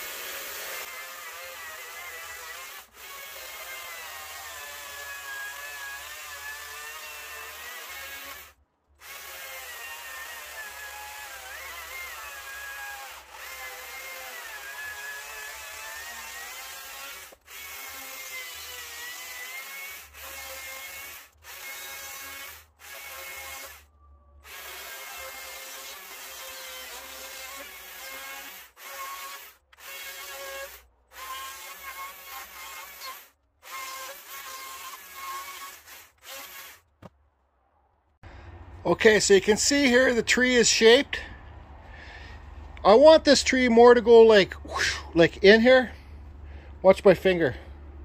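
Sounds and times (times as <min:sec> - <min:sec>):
chainsaw cutting wood: 0:00.0 - 0:37.1.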